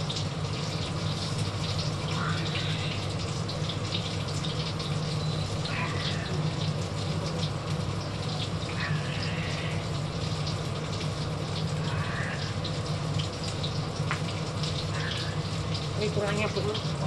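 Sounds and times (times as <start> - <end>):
chicken frying in oil: 0.0 - 17.0
range hood fan running: 0.0 - 17.0.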